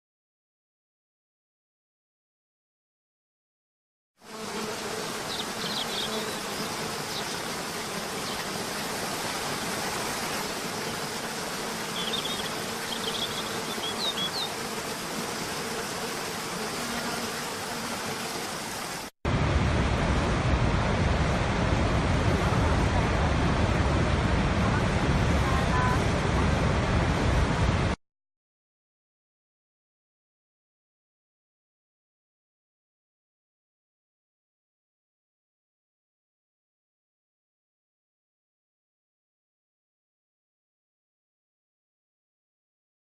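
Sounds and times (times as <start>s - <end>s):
bird chirps: 5.3s - 6.4s, 12.0s - 14.5s.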